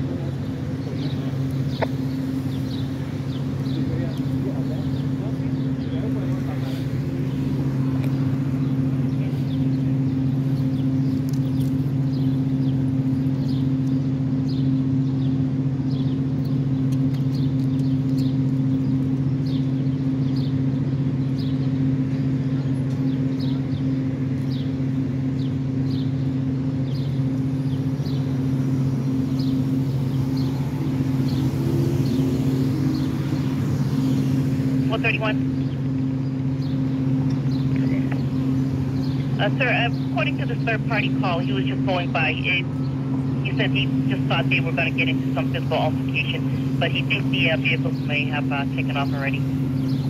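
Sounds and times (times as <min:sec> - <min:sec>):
engine idling hum: 0:00.0 - 0:50.0
car driving past: 0:28.5 - 0:35.8.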